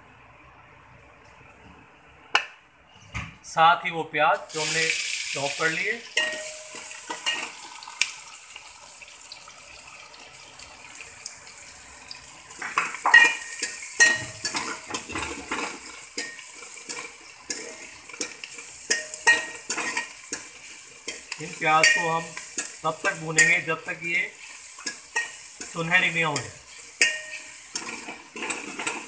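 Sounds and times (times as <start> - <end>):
onions sizzling in pan: 4.4 - 29.0
metal ladle scraping pan: 6.2 - 7.6, 12.8 - 23.7, 24.3 - 29.0.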